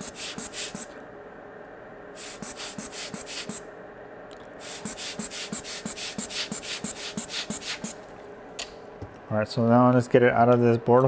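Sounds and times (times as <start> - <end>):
faint steady hum: 0.0 - 11.0
scratchy rubbing strokes: 4.6 - 8.0.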